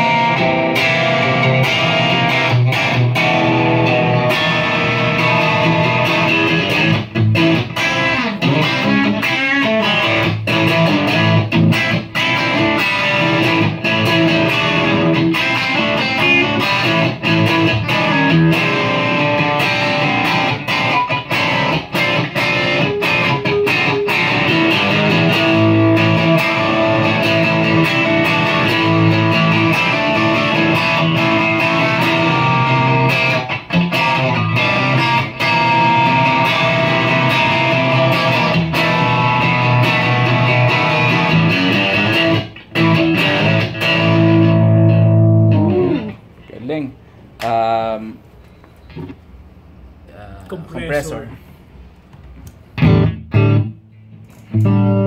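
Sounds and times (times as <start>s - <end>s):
electric guitar through effects: 0.0s - 46.4s, 52.5s - 55.0s.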